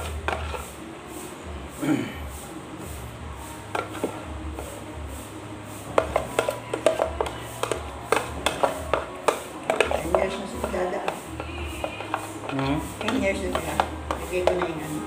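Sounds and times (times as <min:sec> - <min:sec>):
faint background music beat: 0:00.0 - 0:15.0
plastic tub clicks and taps: 0:06.0 - 0:12.3.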